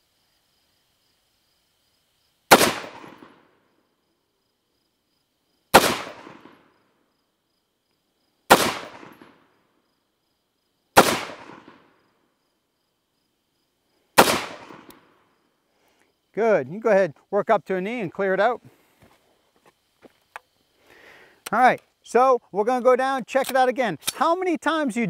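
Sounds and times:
rifle shots echoing: 2.5 - 3.5, 5.7 - 6.7, 8.5 - 9.4, 11.0 - 12.0, 14.2 - 15.2.

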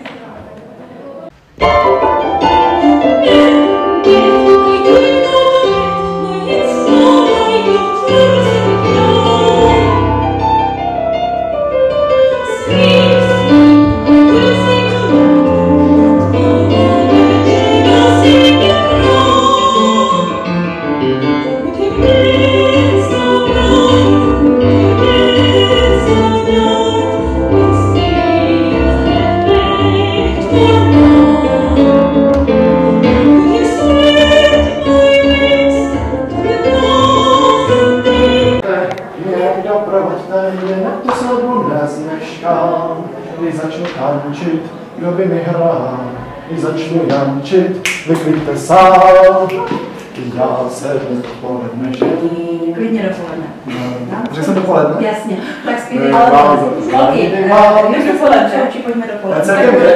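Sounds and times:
woman singing into microphone: 3.2 - 10.6, 12.3 - 20.5, 21.4 - 32.2, 33.2 - 38.6.

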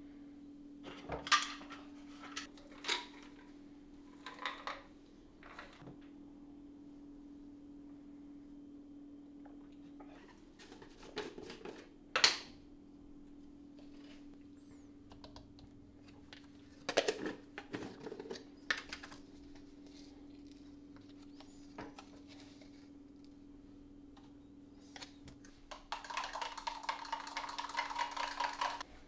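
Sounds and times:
steady low hum: 0.0 - 26.0
plastic tubs clicking and knocking: 25.7 - 28.8.

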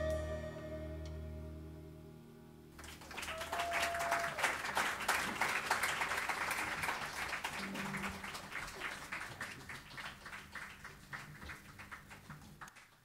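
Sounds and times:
audience clapping: 2.8 - 13.0.

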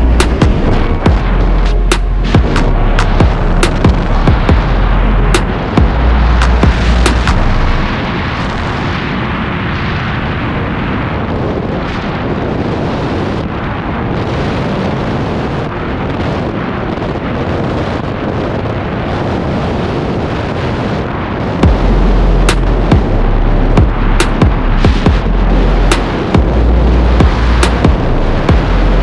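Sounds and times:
freefall wind blasting microphone: 0.0 - 29.0.

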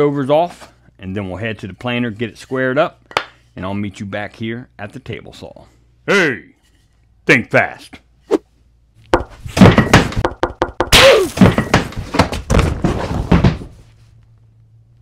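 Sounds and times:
wooden thuds and crashes: 9.2 - 13.9.

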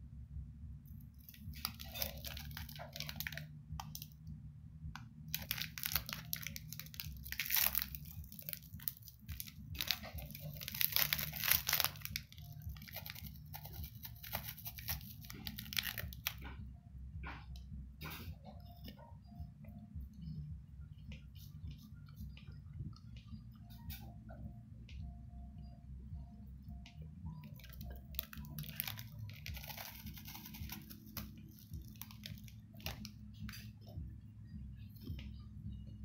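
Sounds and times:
low steady hum: 0.0 - 36.0
wrapper crinkling and tearing: 1.2 - 4.1, 5.3 - 16.5, 27.5 - 33.6.

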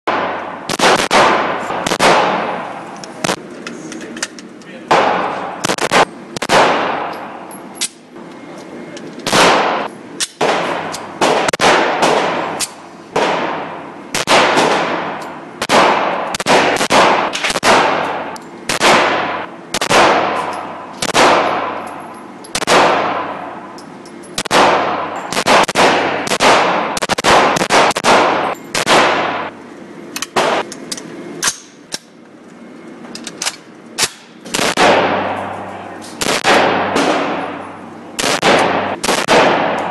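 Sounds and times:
gunshots echoing indoors: 0.1 - 3.5, 4.9 - 7.4, 9.2 - 23.7, 24.4 - 29.5, 30.4 - 30.7, 34.0 - 39.9.

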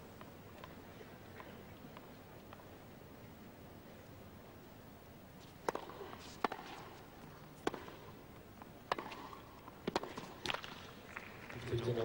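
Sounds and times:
tennis ball struck by rackets: 5.6 - 8.2, 8.8 - 10.9.

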